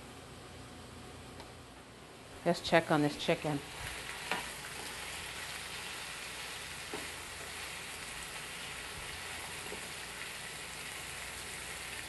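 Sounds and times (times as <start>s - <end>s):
chicken sizzling in a pan: 3.6s - 12.0s.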